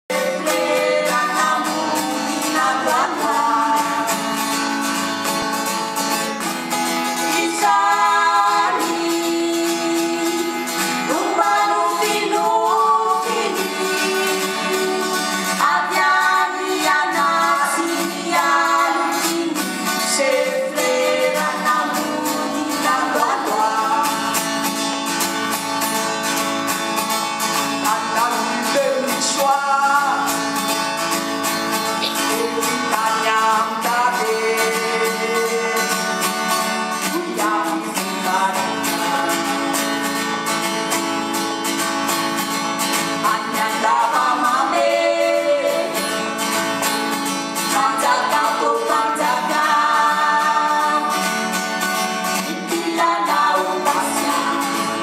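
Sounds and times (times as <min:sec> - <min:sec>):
acoustic guitar: 0:00.0 - 0:55.0
two women singing: 0:00.1 - 0:06.4, 0:07.0 - 0:25.6, 0:27.5 - 0:55.0.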